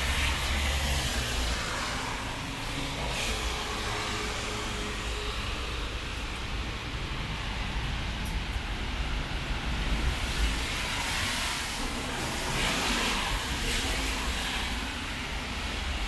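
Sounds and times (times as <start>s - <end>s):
low traffic rumble: 0.0s - 16.0s
tyres hissing on wet asphalt: 0.0s - 16.0s.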